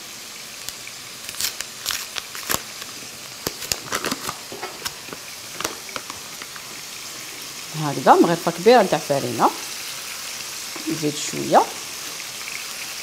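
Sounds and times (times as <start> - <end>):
chicken sizzling in oil: 0.0 - 13.0
crackles and pops of frying: 0.0 - 13.0.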